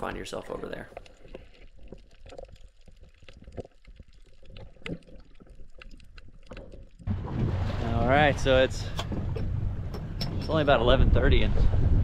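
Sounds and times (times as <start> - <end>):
small irregular clicks and crackles: 0.0 - 7.1
water sloshing and trickling: 0.0 - 11.0.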